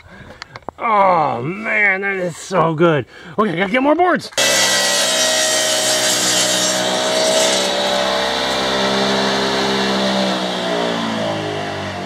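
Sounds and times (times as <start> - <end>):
sawmill machine droning: 4.4 - 12.0.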